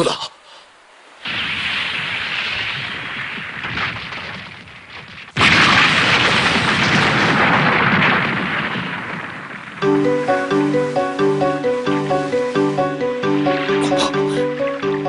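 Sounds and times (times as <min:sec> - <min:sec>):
loud crash of rock breaking: 0:01.2 - 0:09.8.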